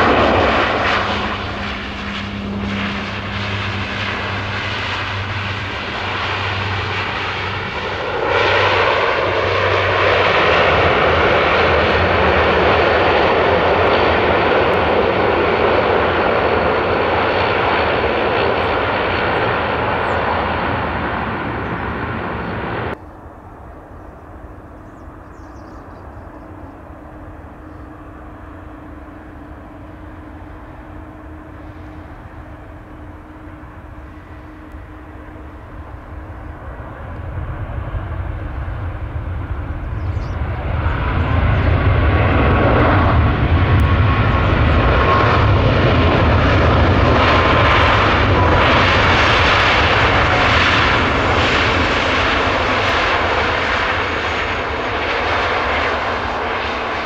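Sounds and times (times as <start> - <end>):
jet engines rushing with whine: 0.0 - 57.0.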